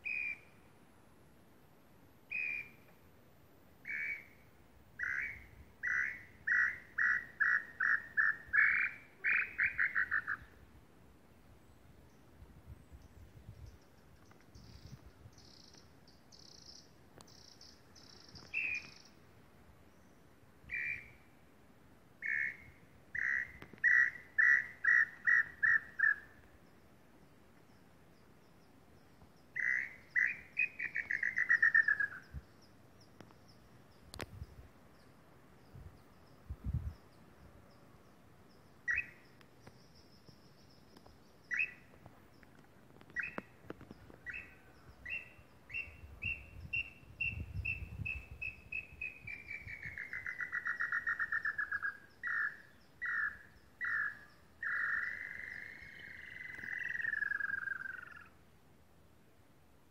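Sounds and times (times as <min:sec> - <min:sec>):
bird whistled calls: 0:00.0 - 0:00.5, 0:02.3 - 0:02.8, 0:05.0 - 0:10.5, 0:20.7 - 0:21.2, 0:29.6 - 0:32.4, 0:38.9 - 0:39.2, 0:41.5 - 0:41.8, 0:44.3 - 0:58.2.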